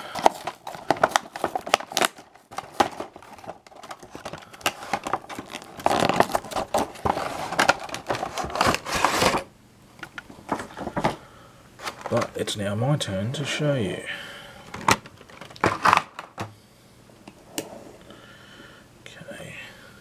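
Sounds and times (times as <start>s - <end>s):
plastic packaging crinkling: 0.0s - 11.2s, 11.8s - 12.5s, 14.7s - 16.4s.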